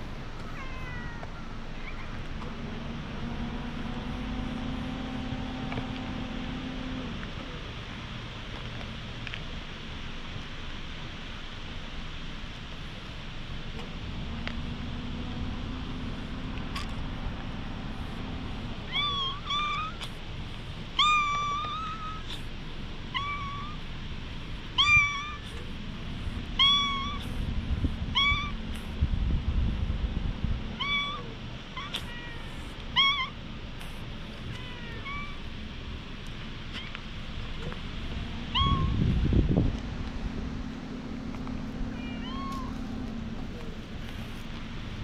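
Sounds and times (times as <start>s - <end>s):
cat meowing: 0.5s - 2.1s, 18.9s - 20.1s, 21.0s - 22.4s, 23.1s - 23.8s, 24.8s - 25.5s, 26.6s - 27.3s, 28.1s - 28.6s, 30.8s - 33.4s, 34.5s - 35.4s, 38.5s - 39.0s, 41.9s - 42.9s.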